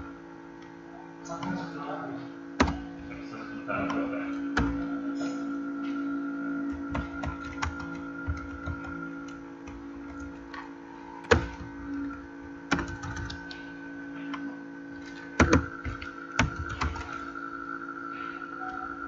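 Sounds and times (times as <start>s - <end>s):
steady background hum: 0.0s - 19.0s
computer keyboard keys clicking: 6.7s - 10.5s, 12.7s - 13.6s, 15.4s - 17.2s.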